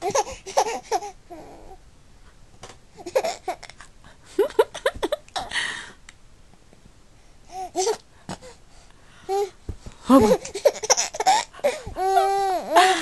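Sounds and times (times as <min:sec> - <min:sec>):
baby laughing: 0:00.0 - 0:01.6, 0:03.0 - 0:03.8, 0:10.2 - 0:13.0
breathy exhale: 0:05.5 - 0:06.0.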